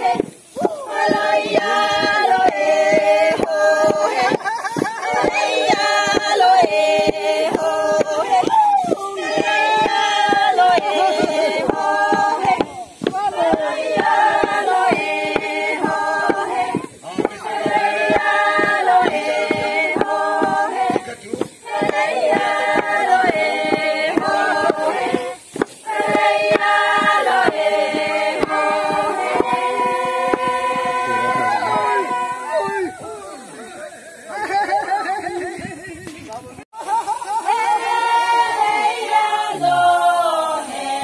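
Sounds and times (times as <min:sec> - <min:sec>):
steady beat of knocks: 0:00.0 - 0:32.2
women singing together: 0:00.0 - 0:33.1, 0:36.8 - 0:41.0.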